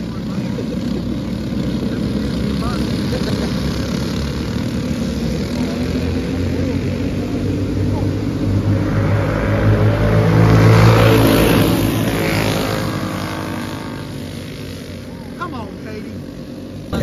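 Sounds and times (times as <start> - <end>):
racing kart engines: 0.0 - 17.0.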